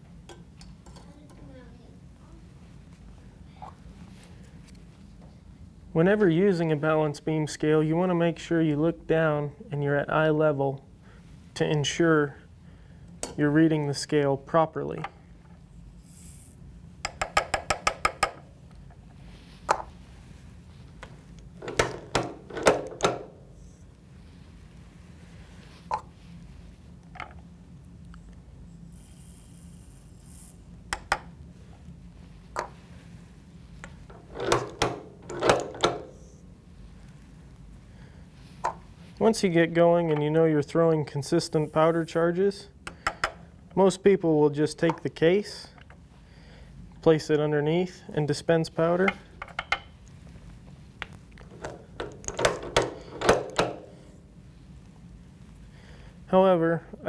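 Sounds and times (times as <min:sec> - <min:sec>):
soft hiss: 0:36.1 - 0:49.4.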